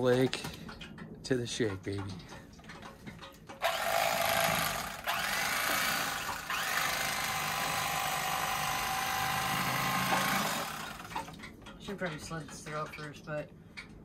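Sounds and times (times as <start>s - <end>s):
electric knife buzzing: 3.6s - 11.2s.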